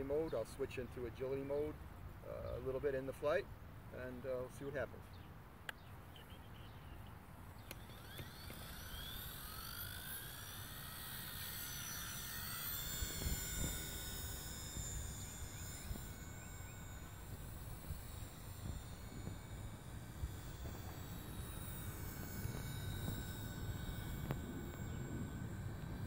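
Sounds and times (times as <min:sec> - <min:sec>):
rc helicopter whine: 0:00.0 - 0:26.0
wind rumble on microphone: 0:12.6 - 0:26.0.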